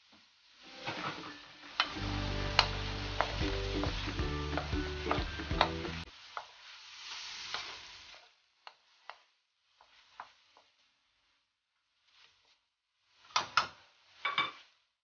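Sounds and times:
meat sizzling in a wok: 0:00.0 - 0:11.2
background music: 0:00.7 - 0:06.1
wooden spoon scraping a pan: 0:00.8 - 0:15.0.

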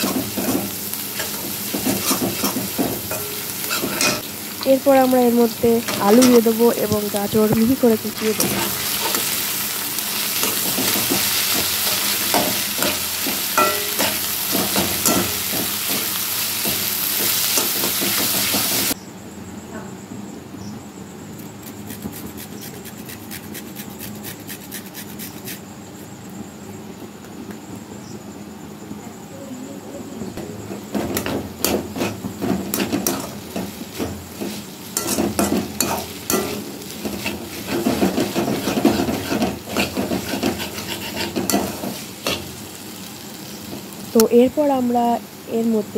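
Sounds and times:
metal spatula scraping pan: 0:00.0 - 0:04.3, 0:08.1 - 0:09.6, 0:10.2 - 0:18.7, 0:30.9 - 0:42.6
potato and onion sizzling: 0:00.0 - 0:19.0, 0:30.4 - 0:45.9.

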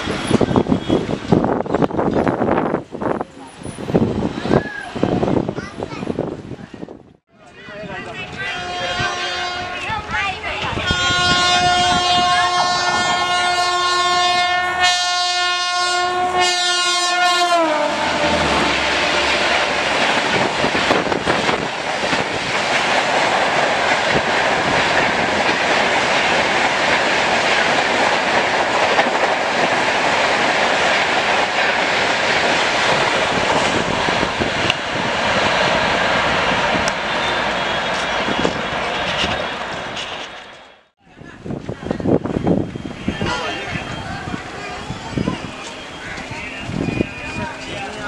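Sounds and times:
train wheels rattling on rails: 0:00.0 - 0:06.5, 0:16.6 - 0:48.0
electric locomotive horn blasts: 0:08.3 - 0:10.0, 0:10.7 - 0:19.8, 0:43.1 - 0:43.8.

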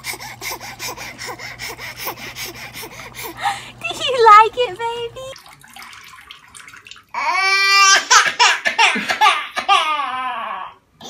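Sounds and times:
bath water splashing: 0:02.2 - 0:07.8.

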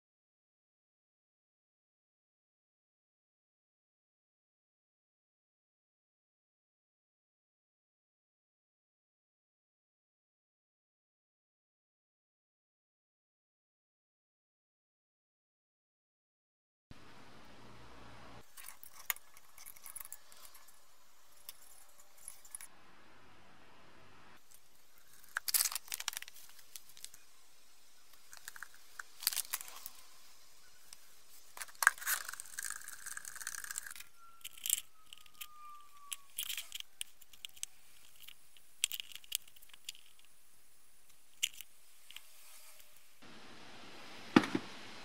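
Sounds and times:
metal parts clinking and knocking: 0:18.4 - 0:22.7, 0:25.0 - 0:27.2, 0:28.2 - 0:30.1, 0:30.9 - 0:40.4, 0:41.1 - 0:42.2
faint hiss: 0:20.2 - 0:33.0, 0:36.3 - 0:45.0.

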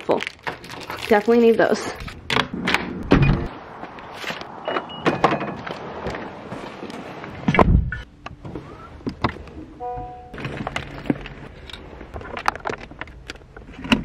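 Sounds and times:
short high beeps: 0:09.8 - 0:10.4.

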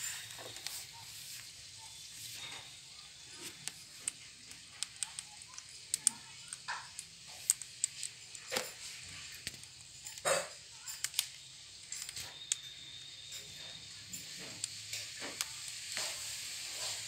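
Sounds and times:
parakeets pecking clicks and taps: 0:03.3 - 0:16.3.

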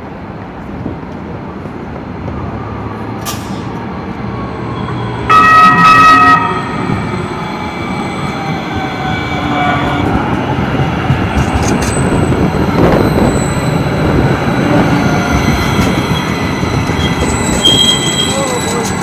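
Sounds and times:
light rail train rumbling: 0:00.0 - 0:19.0
train horn blast: 0:05.3 - 0:06.8, 0:09.4 - 0:10.2.

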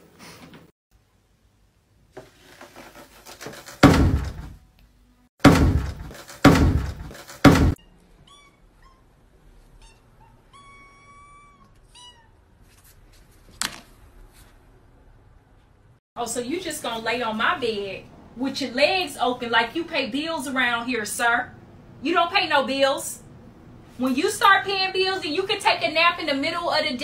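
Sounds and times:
loud thumps: 0:03.7 - 0:04.6, 0:05.4 - 0:07.8.

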